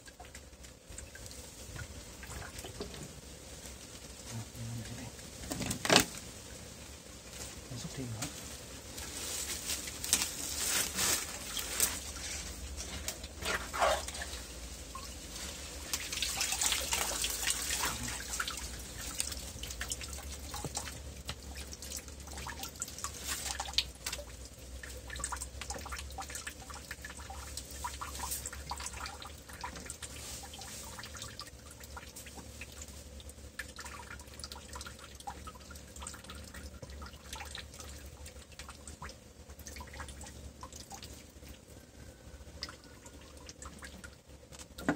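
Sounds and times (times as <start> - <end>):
small water splashes: 0.0 - 3.0, 9.2 - 41.8
shallow water sloshing and dripping: 0.0 - 6.2, 8.0 - 44.9.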